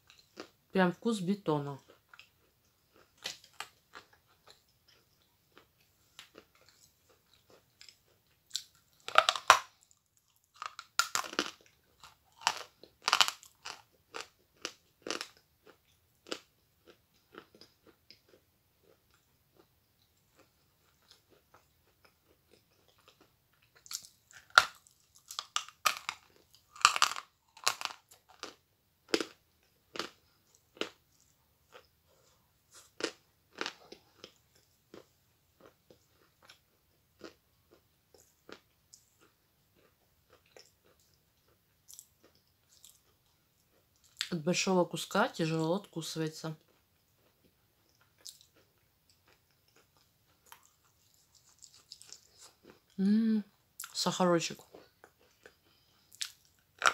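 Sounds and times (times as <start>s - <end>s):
chalk being bitten and chewed: 1.8s - 19.7s, 20.3s - 44.3s, 46.6s - 52.9s.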